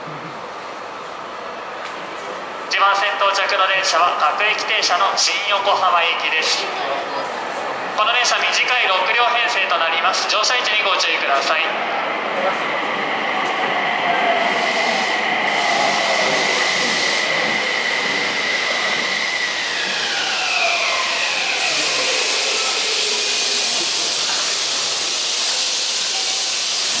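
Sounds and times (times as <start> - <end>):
train inverter whining: 8.1 - 27.0
rush of train wheels: 10.2 - 27.0.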